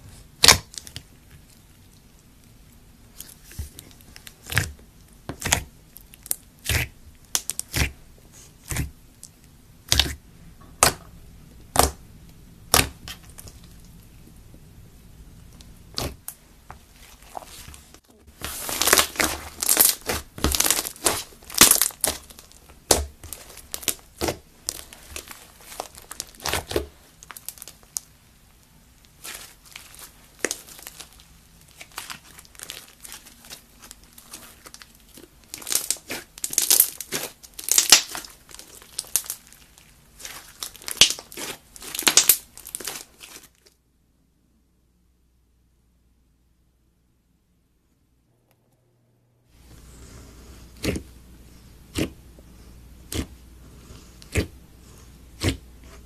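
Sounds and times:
slime squishing with clicks and pops: 0:03.2 - 0:08.0, 0:08.6 - 0:14.0, 0:15.5 - 0:16.4, 0:18.8 - 0:28.2, 0:31.7 - 0:39.6.

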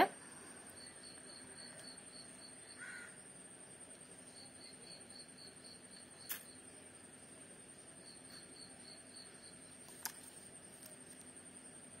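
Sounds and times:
insects chirping: 0:00.0 - 0:12.0
single click: 0:06.3 - 0:06.5.

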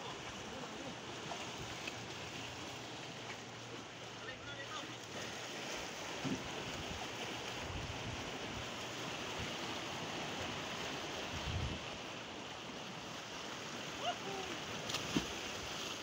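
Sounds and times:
sea waves breaking over rocks: 0:00.0 - 0:16.0
wind buffets on microphone: 0:11.3 - 0:11.9.

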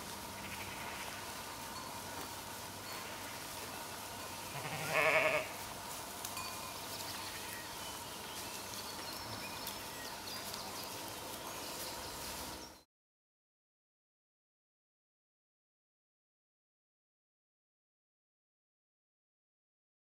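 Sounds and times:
sheep bleating: 0:00.4 - 0:01.2, 0:04.5 - 0:05.6.

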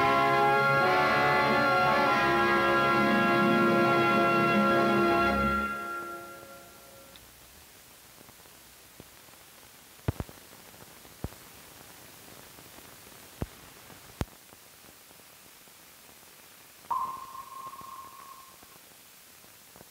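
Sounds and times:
film soundtrack hiss: 0:00.0 - 0:19.9
steady high tone: 0:02.2 - 0:07.0, 0:16.9 - 0:18.6.

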